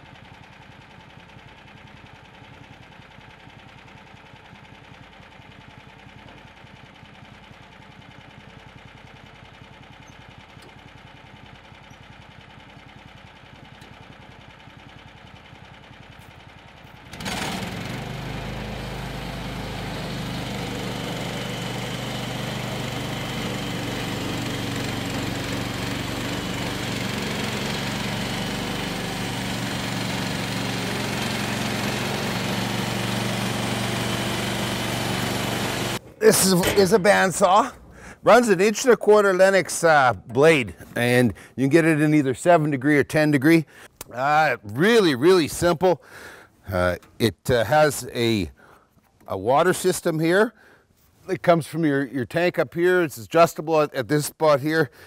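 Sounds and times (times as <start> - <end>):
sawmill engine idling and revving: 0.0 - 41.7.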